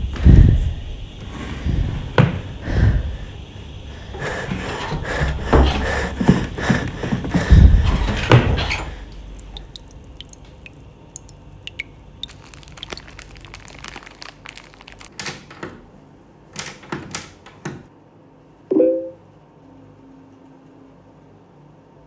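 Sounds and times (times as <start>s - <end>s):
paper being crumpled: 12.2s - 15.5s
brief pitched tone: 18.7s - 19.2s.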